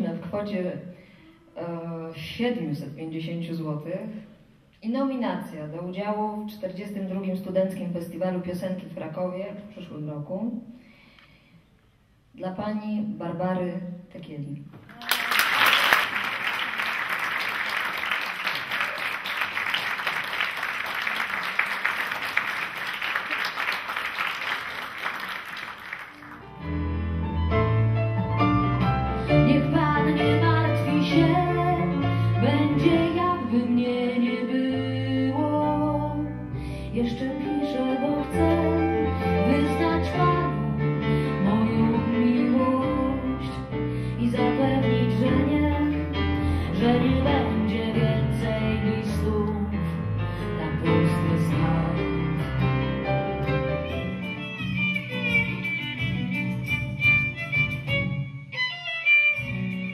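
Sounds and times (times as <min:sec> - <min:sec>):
audience applause: 0:14.9 - 0:26.6
woman singing: 0:29.4 - 0:52.3
instrumental accompaniment: 0:50.0 - 0:59.9.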